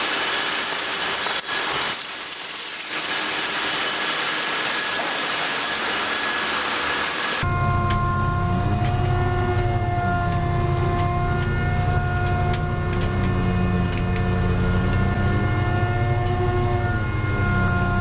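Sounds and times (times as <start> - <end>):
winch machinery throbbing and whining: 0.0 - 18.0.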